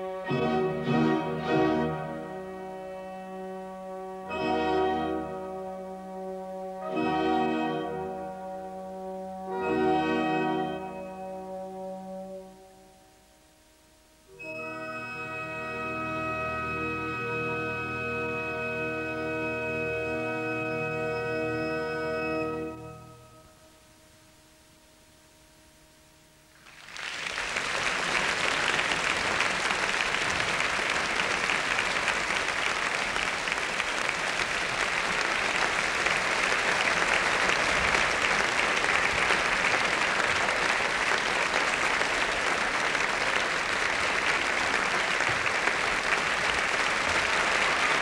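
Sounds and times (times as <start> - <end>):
faint orchestral music: 0.0 - 48.0
audience applauding: 26.6 - 48.0.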